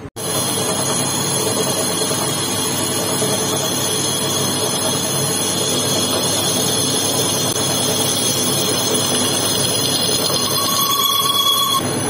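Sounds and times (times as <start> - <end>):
high-pitched ringing tones: 0.2 - 11.9
metal lathe machining: 0.2 - 12.0.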